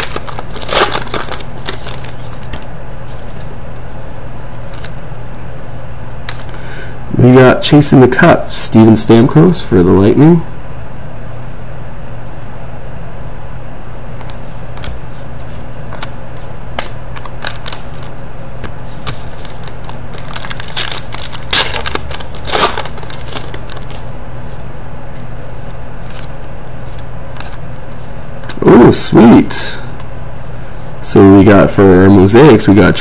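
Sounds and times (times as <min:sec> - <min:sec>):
foil wrapper crinkling: 0:00.0 - 0:03.4, 0:16.8 - 0:18.2, 0:18.9 - 0:24.1
cards clicking and rustling: 0:00.0 - 0:03.5, 0:04.6 - 0:05.0, 0:14.2 - 0:24.1, 0:26.0 - 0:28.6
background hum: 0:00.0 - 0:33.0.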